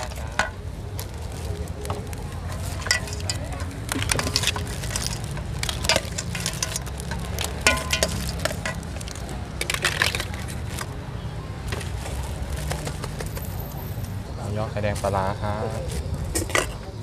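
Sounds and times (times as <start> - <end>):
utensils clattering in a basin: 2.4 - 11.0, 16.3 - 16.9.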